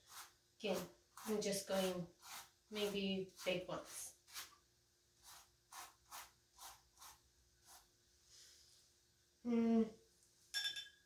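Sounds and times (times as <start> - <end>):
person making voiced sound: 9.4 - 10.0.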